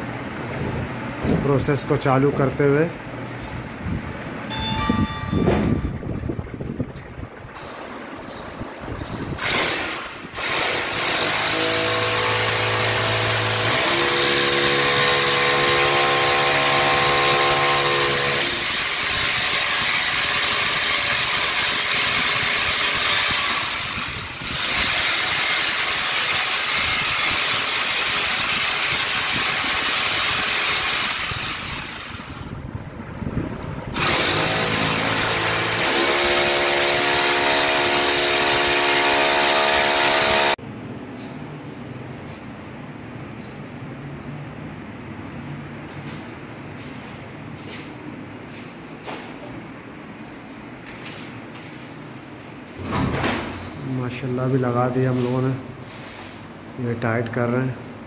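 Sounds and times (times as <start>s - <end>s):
electric drill boring into wall: 9.4s - 32.5s, 34.0s - 40.6s.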